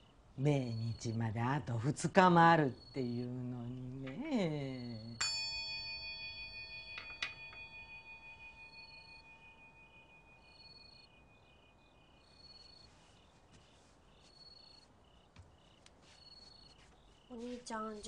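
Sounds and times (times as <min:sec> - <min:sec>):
bowl bell ringing: 0:05.2 - 0:11.5.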